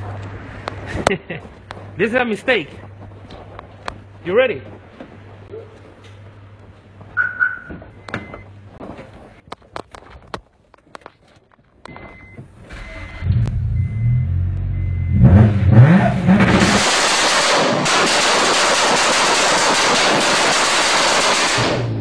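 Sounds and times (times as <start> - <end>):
car engine revving: 12.7 - 22.0
rev limiter crackle of rapid bangs: 16.4 - 22.0.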